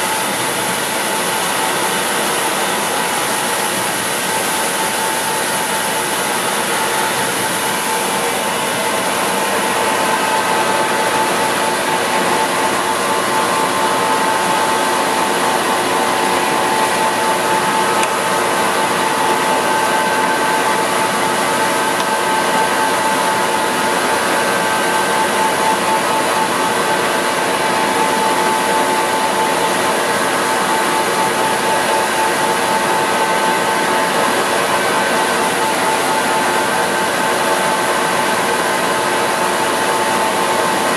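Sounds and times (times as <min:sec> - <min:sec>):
constant machine tone: 0:00.0 - 0:40.9
surface grinder running: 0:00.0 - 0:40.9.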